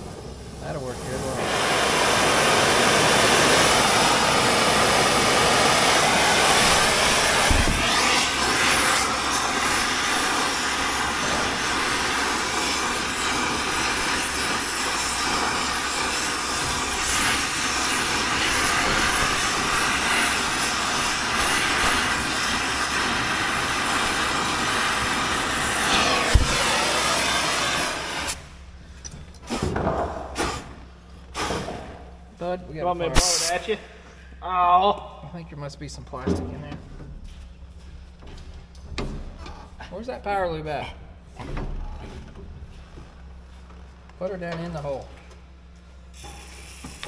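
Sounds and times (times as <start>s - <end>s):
torch hissing: 0.0s - 28.6s, 30.2s - 32.0s, 33.1s - 33.8s, 46.2s - 47.0s
sharp pop: 7.4s - 8.0s, 26.3s - 26.7s.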